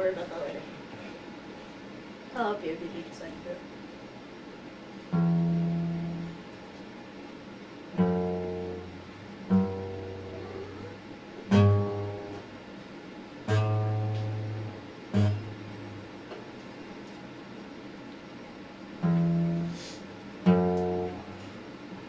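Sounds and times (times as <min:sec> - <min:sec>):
acoustic guitar strummed chords: 0:05.1 - 0:06.5, 0:07.9 - 0:12.6, 0:13.4 - 0:16.5, 0:18.9 - 0:21.8.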